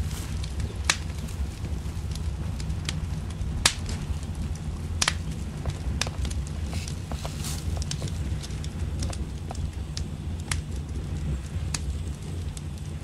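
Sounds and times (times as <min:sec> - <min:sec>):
steady low rumble: 0:00.0 - 0:13.0
stick fire crackling and popping: 0:00.0 - 0:13.0.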